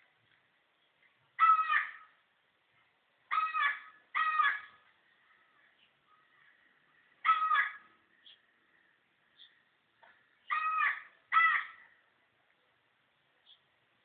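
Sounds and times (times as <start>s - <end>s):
harsh animal calls: 3.3s - 4.8s, 7.2s - 8.0s, 10.5s - 11.8s.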